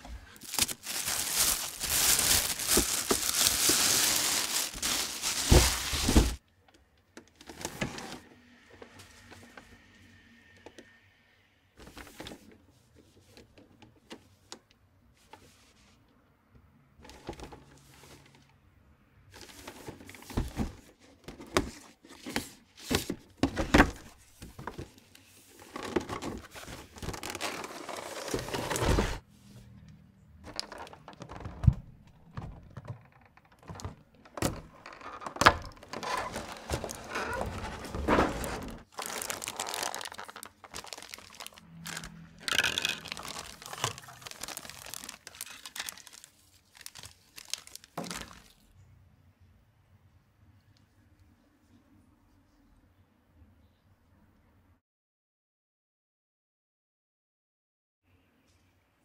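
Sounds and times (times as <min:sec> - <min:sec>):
faint handling: 0:00.0 - 0:06.4
plastic crinkling: 0:00.2 - 0:06.4, 0:25.6 - 0:29.2, 0:30.4 - 0:31.7, 0:32.4 - 0:48.7.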